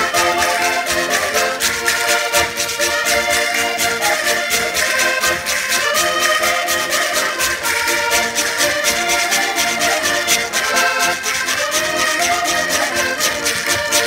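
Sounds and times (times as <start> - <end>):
button accordions playing folk tune: 0.0 - 14.0.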